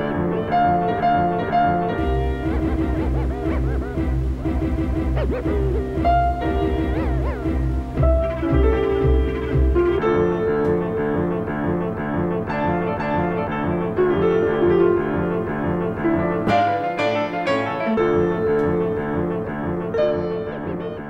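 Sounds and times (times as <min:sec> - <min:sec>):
fast repeating pitched figure: 0:01.2 - 0:10.1
pulsing low bass line: 0:01.9 - 0:10.3.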